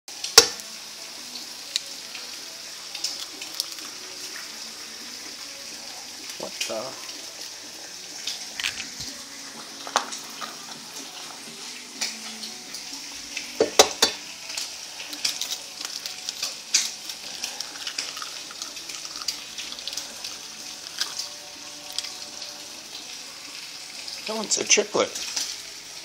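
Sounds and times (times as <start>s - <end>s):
eggs sizzling in a frying pan: 0.1s - 26.0s
knocks against pan: 13.6s - 14.2s.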